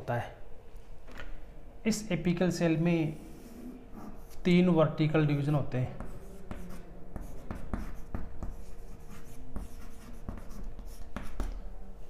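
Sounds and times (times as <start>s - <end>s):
chalk tapping and scratching on blackboard: 3.3s - 4.4s, 5.9s - 11.6s.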